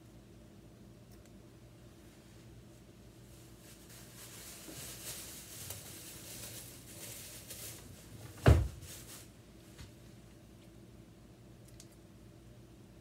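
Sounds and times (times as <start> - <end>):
rustling movement: 2.2 - 10.1
kitchen drawer thumping shut: 8.4 - 8.8.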